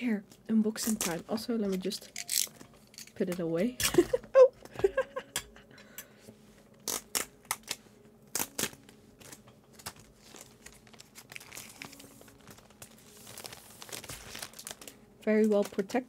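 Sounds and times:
package rustling: 8.4 - 16.0
plastic packaging crinkling and tearing: 8.4 - 16.0.

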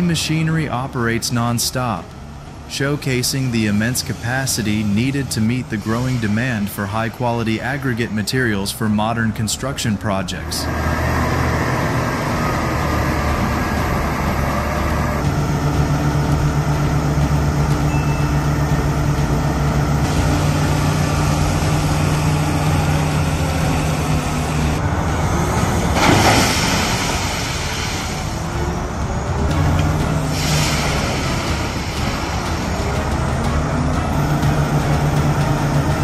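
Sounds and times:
heavy diesel engines running: 0.0 - 36.0
loud rush of noise: 10.4 - 36.0.

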